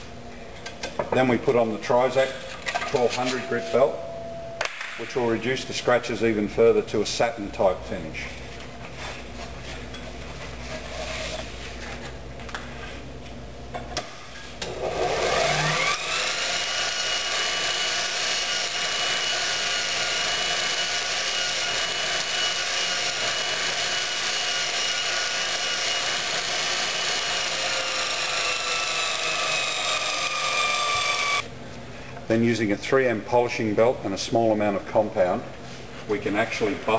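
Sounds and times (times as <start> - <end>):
bench grinder motor whine: 14.6 - 31.4.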